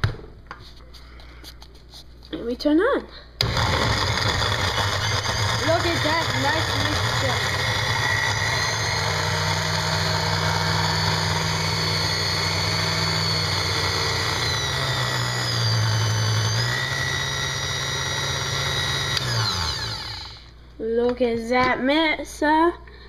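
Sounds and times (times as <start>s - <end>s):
blender motor running: 3.4s - 20.6s.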